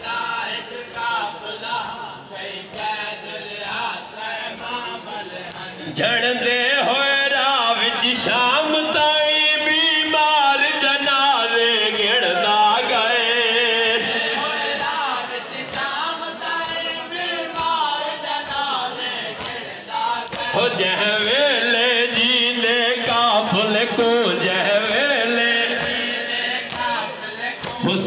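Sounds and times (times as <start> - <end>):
crowd singing chorus: 0.0 - 28.0
men singing a lament: 0.0 - 28.0
hands slapping chests: 18.4 - 20.6, 25.7 - 27.0.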